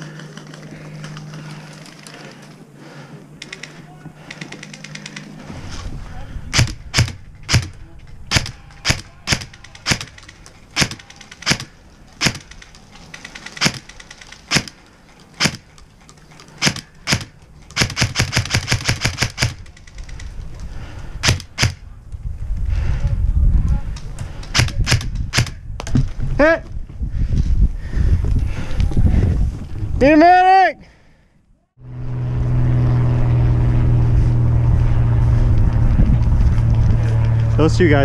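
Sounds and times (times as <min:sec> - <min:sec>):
airsoft gun shots: 0:06.5 - 0:10.2, 0:10.8 - 0:12.6, 0:14.5 - 0:14.8, 0:21.2 - 0:21.8
airsoft full-auto burst: 0:16.6 - 0:19.6.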